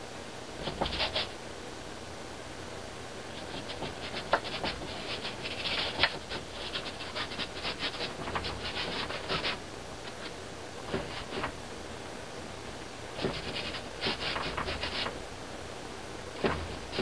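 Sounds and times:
paintbrush scratching on canvas: 0:00.6 - 0:01.4, 0:03.4 - 0:11.5, 0:13.2 - 0:15.2.

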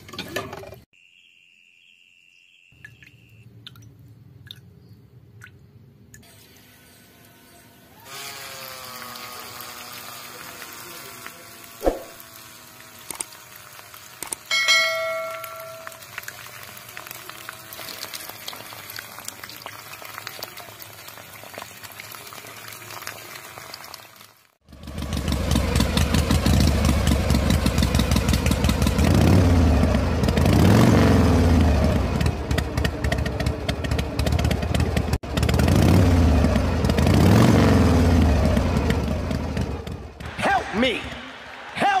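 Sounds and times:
water pump whirring and splashing: 0:06.2 - 0:37.4.

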